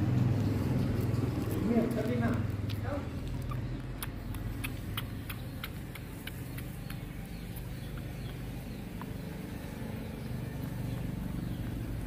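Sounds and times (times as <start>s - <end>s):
wet sucking clicks: 0.9s - 9.2s.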